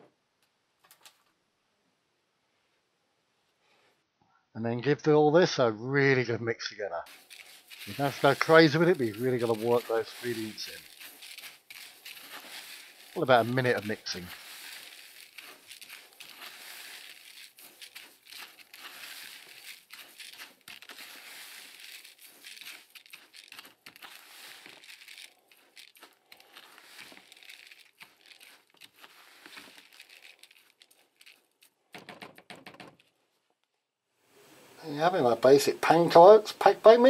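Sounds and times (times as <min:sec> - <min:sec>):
spoon stirring crunchy mix: 0:07.1 - 0:31.8.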